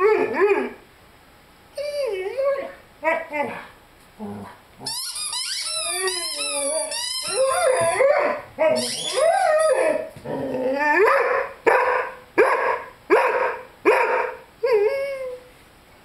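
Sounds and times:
puppy whining: 1.8 - 11.1
rubber toy squeaking: 4.8 - 7.9, 8.8 - 9.2
puppy howling: 5.6 - 11.5
puppy barking: 11.0 - 14.4.

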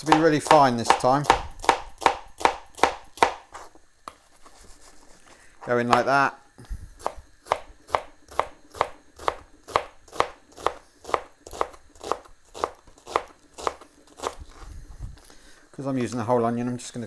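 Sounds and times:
knife chopping onion on plastic board: 0.0 - 4.2, 5.8 - 6.1, 7.0 - 14.4.

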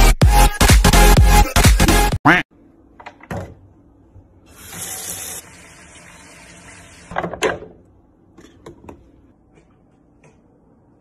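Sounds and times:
tap water running into tub: 4.6 - 7.2.

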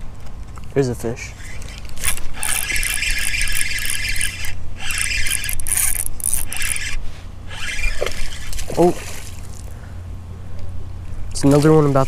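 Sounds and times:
fishing reel whirring: 1.4 - 8.9.

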